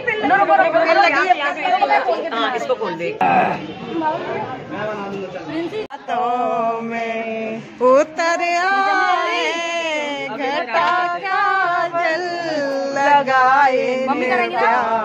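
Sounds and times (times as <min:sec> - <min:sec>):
woman singing: 0:06.1 - 0:15.0.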